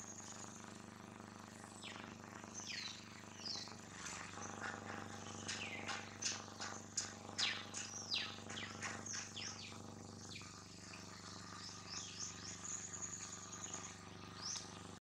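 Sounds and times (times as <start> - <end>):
wild birds chirping: 1.4 - 15.0
bird trill: 2.6 - 3.8, 4.4 - 14.7.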